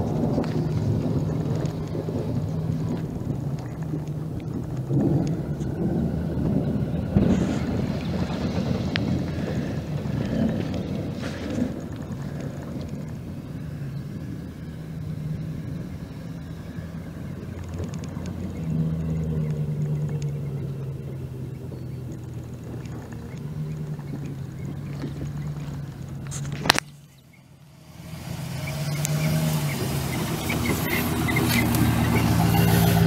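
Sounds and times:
pickup engine rumbling: 0:00.0 - 0:33.0.

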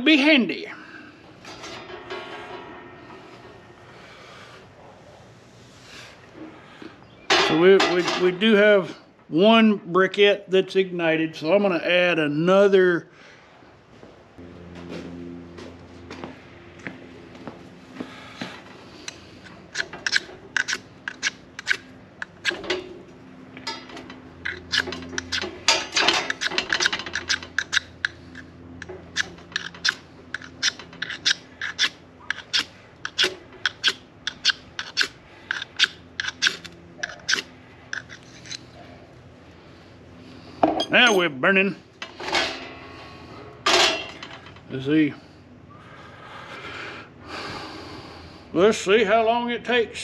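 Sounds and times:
striker scraping ferro rod: 0:19.0 - 0:22.8, 0:23.6 - 0:38.7.

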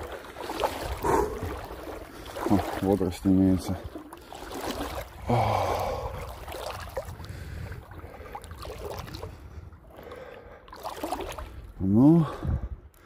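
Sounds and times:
water sloshing and splashing: 0:00.0 - 0:13.0
wind rumble on microphone: 0:05.0 - 0:10.0, 0:11.4 - 0:13.0.

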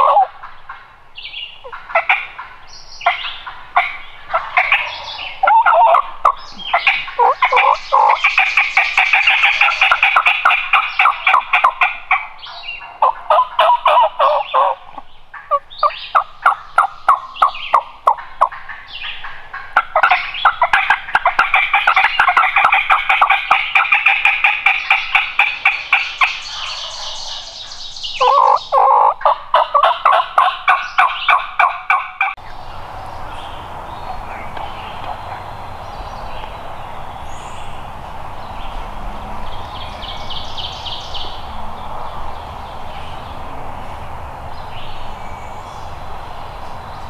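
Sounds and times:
turkey calling: 0:00.0 - 0:32.5.

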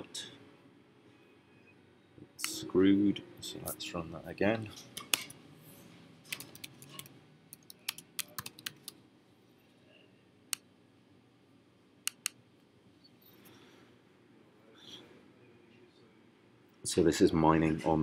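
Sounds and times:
typing on computer keyboard: 0:06.3 - 0:09.0.

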